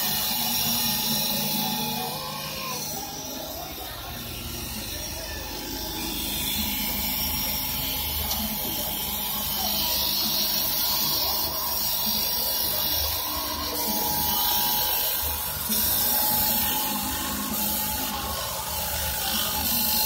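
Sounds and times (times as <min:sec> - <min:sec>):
lathe machine noise: 0:00.0 - 0:20.0
tool shaving wood hiss: 0:00.0 - 0:20.0.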